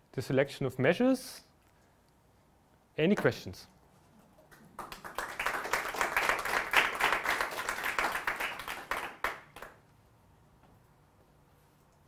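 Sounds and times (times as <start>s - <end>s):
audience applauding: 4.5s - 9.8s.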